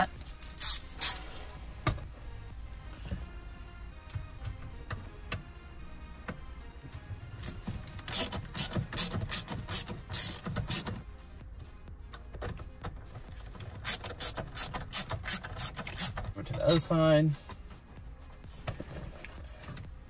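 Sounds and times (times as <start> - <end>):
screwdriver scraping screws: 8.0 - 10.9, 13.8 - 16.2.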